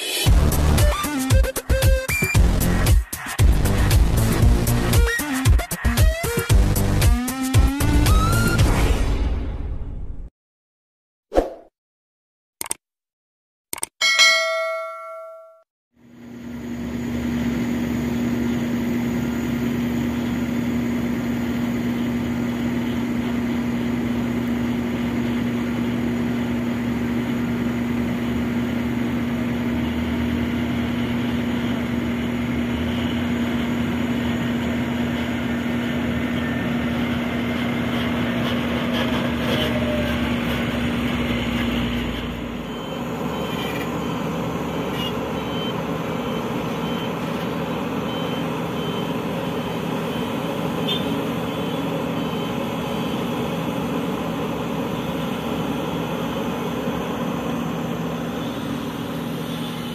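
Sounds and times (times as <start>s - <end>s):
diesel truck engine droning: 16.1s - 59.9s
diesel excavator working: 16.2s - 59.9s
high-pitched warning beep: 42.5s - 47.2s, 47.8s - 53.2s.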